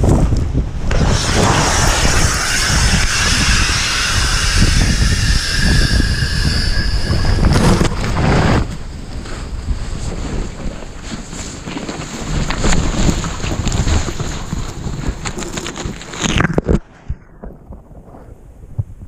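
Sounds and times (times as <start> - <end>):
snow rushing around helmet camera: 0.1 - 18.9
steady low rumble: 0.4 - 11.0
loud hiss: 0.8 - 8.8.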